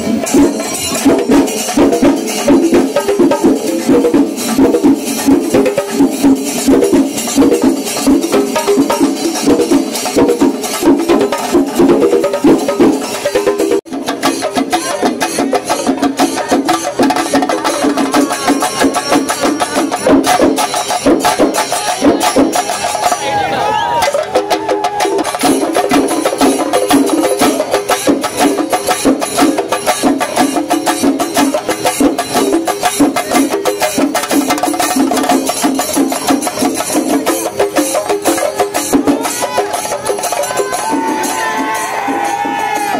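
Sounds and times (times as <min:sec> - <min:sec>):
rapid drum strokes: 0:00.0 - 0:23.2, 0:24.0 - 0:42.9
cymbals clashing: 0:00.0 - 0:42.9
pitched melody: 0:14.3 - 0:25.6
jingling: 0:14.7 - 0:23.2.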